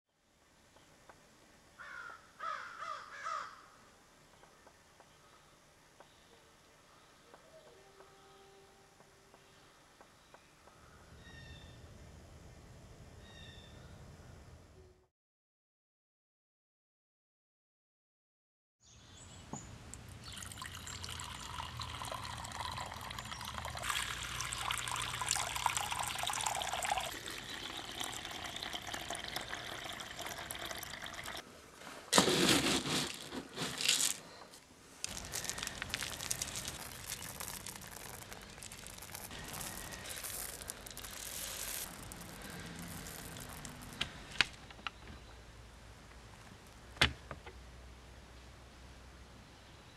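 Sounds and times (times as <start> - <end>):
water pouring into bowl: 20.2 - 31.4, 35.1 - 44.0.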